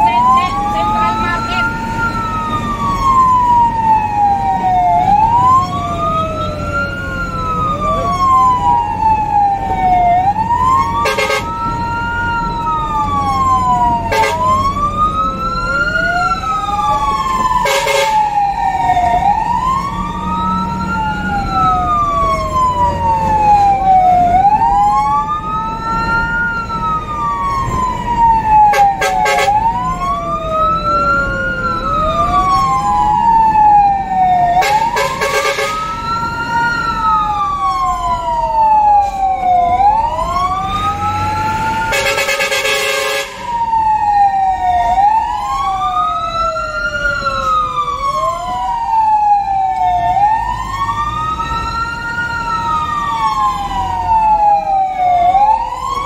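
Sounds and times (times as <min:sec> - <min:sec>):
fire engine siren wailing: 0:00.0 - 0:56.0
second siren pattern: 0:00.0 - 0:56.0
truck engine rumbling: 0:00.0 - 0:56.0
horn blasts: 0:11.0 - 0:11.5, 0:14.1 - 0:14.5, 0:17.6 - 0:18.2, 0:28.7 - 0:29.6, 0:34.6 - 0:36.0, 0:41.9 - 0:43.5.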